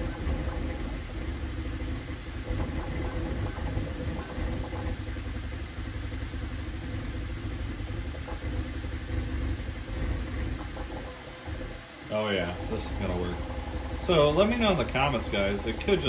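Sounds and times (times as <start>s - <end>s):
fans humming: 0.0s - 16.0s
stepper motors whirring: 8.2s - 16.0s.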